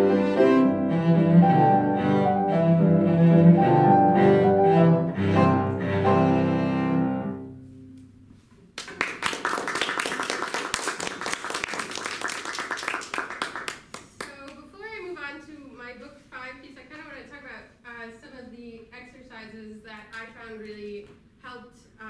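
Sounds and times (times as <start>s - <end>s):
cello and piano playing: 0.0s - 8.0s
audience applauding: 8.8s - 14.2s.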